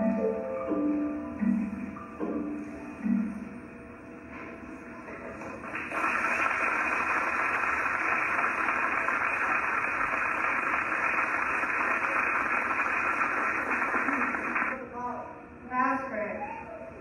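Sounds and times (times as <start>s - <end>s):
static hiss: 5.6s - 14.8s.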